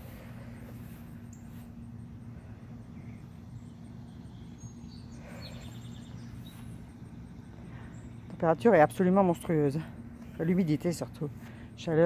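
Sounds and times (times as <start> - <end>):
steady low hum: 0.0 - 12.0
bird chirps: 3.0 - 6.8.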